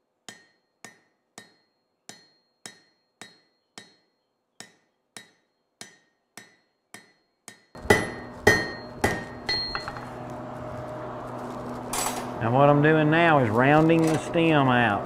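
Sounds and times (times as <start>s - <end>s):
hammer striking steel on anvil: 0.2s - 10.1s.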